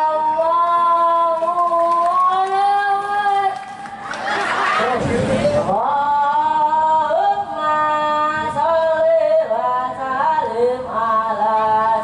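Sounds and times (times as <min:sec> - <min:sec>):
boy singing unaccompanied: 0:00.0 - 0:03.6, 0:04.8 - 0:12.0.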